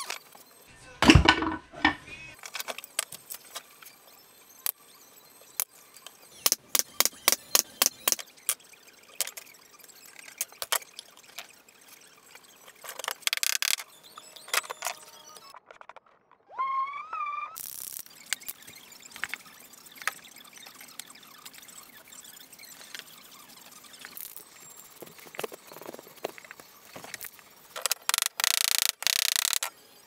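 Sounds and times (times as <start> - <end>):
clicks of copper pieces and tools: 5.6 - 8.6, 9.2 - 9.5, 12.8 - 13.8, 25.0 - 29.7.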